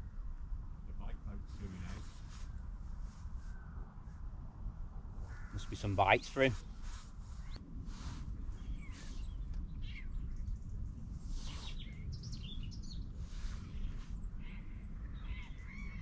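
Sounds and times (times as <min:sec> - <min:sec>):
steady low rumble: 0:00.0 - 0:16.0
birds chirping: 0:05.3 - 0:16.0.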